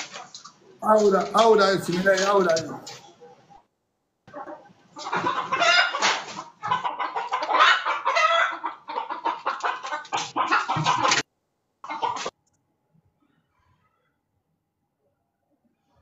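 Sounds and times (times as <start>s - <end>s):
chickens clucking: 0.0s - 3.6s, 4.3s - 12.4s.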